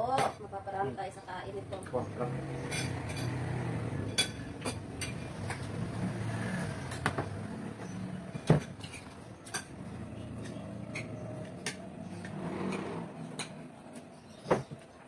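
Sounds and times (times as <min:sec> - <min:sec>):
spoon clinking on metal bowls: 0:02.6 - 0:05.8, 0:08.6 - 0:11.9.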